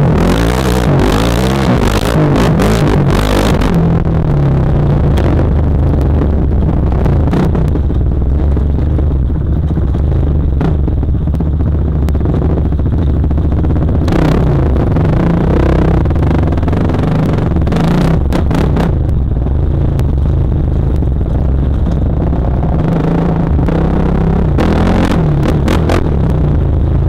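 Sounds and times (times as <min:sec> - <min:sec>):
dirt bike engine revving: 0:00.0 - 0:04.1, 0:21.8 - 0:26.5.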